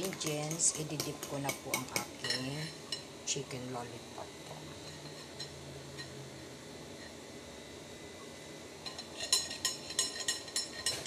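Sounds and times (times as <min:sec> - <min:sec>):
metal spoon clinking glass bowl: 0:00.0 - 0:03.1, 0:08.8 - 0:11.0.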